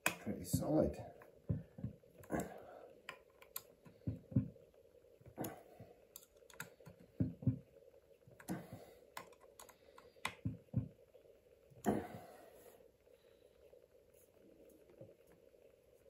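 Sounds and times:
small parts clicking and knocking: 0.0s - 11.0s
faint hum: 0.0s - 16.0s.

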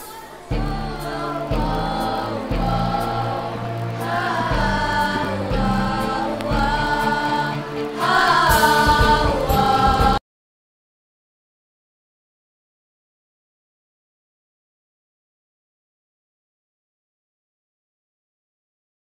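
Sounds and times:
women's choir singing: 0.0s - 10.2s
low bass accompaniment: 0.5s - 10.2s.

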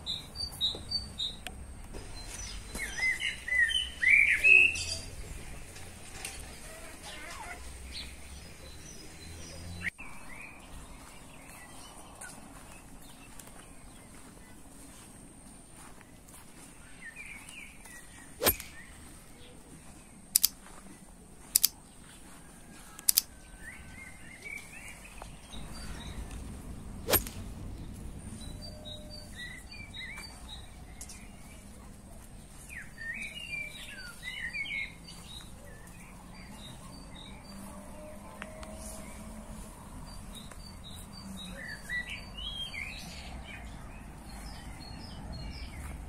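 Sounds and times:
small birds chirping: 0.0s - 46.0s
sharp clicks: 20.3s - 20.6s, 21.5s - 21.8s, 23.0s - 23.3s.

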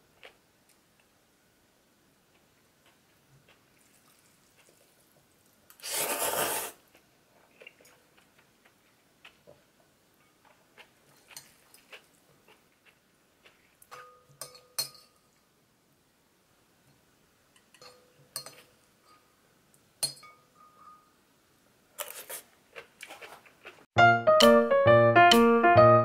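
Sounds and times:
soft chewing: 2.1s - 5.8s, 6.8s - 15.5s, 22.0s - 23.9s
fork scraping glass bowl: 5.8s - 6.8s
loud slurp: 5.8s - 6.8s
spoon clinking glass bowl: 13.9s - 15.2s, 17.7s - 19.3s, 20.0s - 21.2s.

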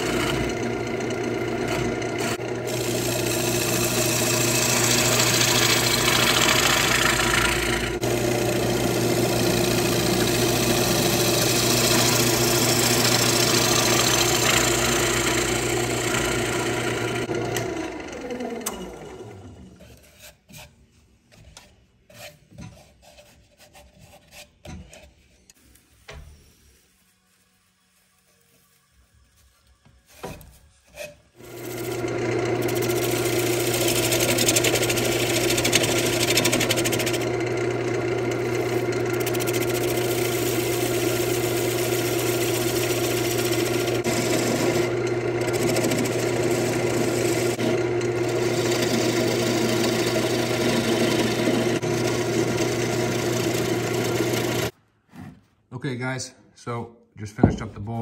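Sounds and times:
lathe motor hum: 0.0s - 19.7s, 31.4s - 54.7s
gouge rasping on wood: 32.6s - 37.2s, 38.5s - 44.9s, 45.5s - 51.6s.

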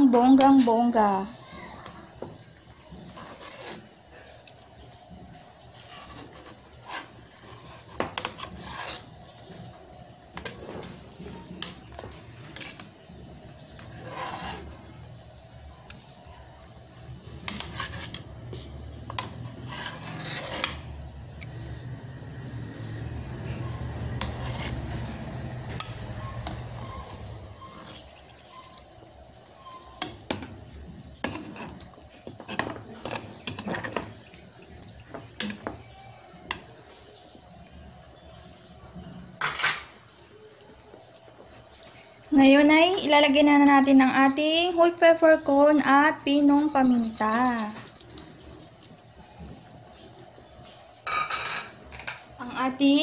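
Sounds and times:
metal ladle scraping a pot: 2.9s - 4.4s, 5.6s - 9.7s, 10.3s - 15.3s, 17.2s - 21.1s, 23.5s - 30.4s, 31.2s - 34.1s, 51.0s - 52.2s.

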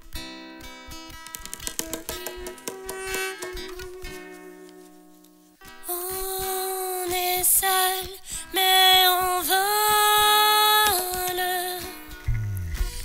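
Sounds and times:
woman singing wordless melody: 5.8s - 12.2s
low bass note sliding: 12.3s - 13.0s.

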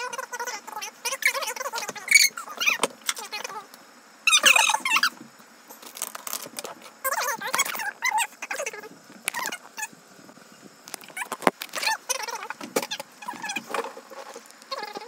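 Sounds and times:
high-pitched vocal sounds: 14.7s - 15.0s.

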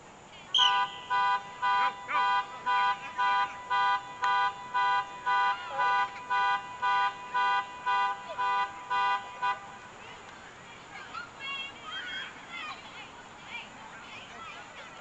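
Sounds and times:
car alarm horn honking: 0.6s - 9.9s.

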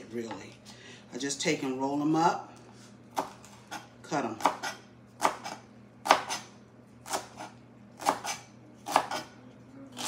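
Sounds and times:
knife slicing cabbage on board: 3.1s - 9.4s.

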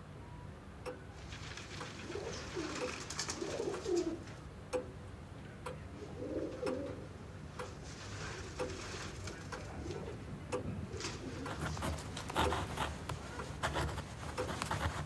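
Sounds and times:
pigeons cooing: 1.9s - 4.4s, 6.0s - 7.2s, 10.9s - 12.7s.

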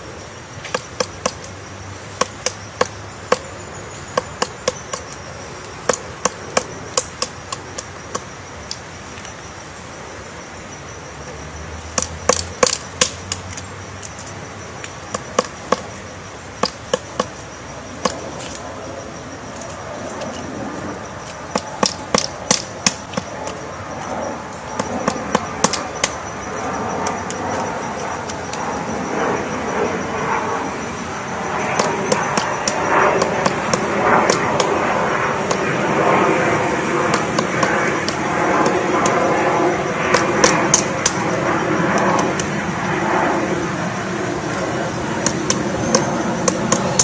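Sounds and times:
woodpecker knocking on tree trunk: 0.6s - 3.5s, 4.1s - 8.8s, 11.8s - 14.2s, 14.8s - 16.0s, 16.6s - 18.6s, 21.3s - 23.6s, 24.7s - 28.4s, 45.2s - 47.0s.

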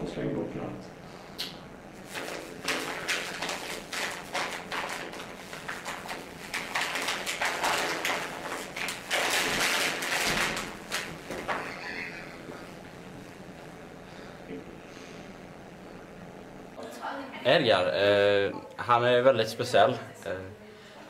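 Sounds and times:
paper rustling and crumpling: 2.0s - 11.9s.

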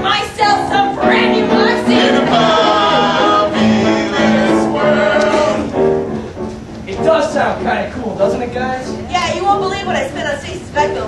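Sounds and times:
backing music: 0.0s - 11.0s
group singing in chorus: 0.4s - 6.2s.

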